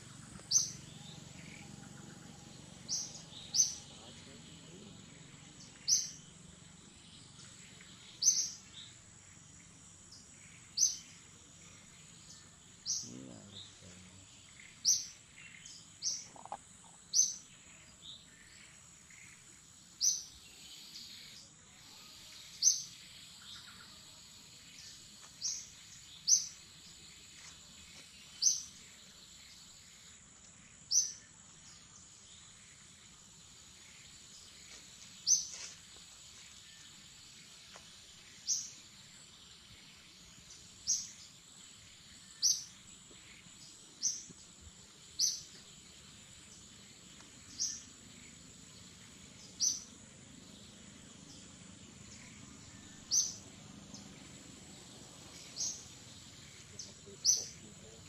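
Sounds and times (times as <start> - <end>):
bird chirping: 0.0 - 58.0
high-pitched insect drone: 20.2 - 25.7.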